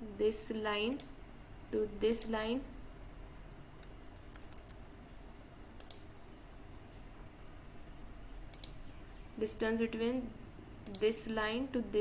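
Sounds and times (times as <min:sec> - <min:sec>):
faint low hum: 0:00.0 - 0:12.0
computer mouse clicks: 0:00.9 - 0:01.2, 0:02.1 - 0:02.4, 0:03.8 - 0:04.9, 0:05.8 - 0:06.1, 0:08.5 - 0:08.9, 0:10.8 - 0:11.4.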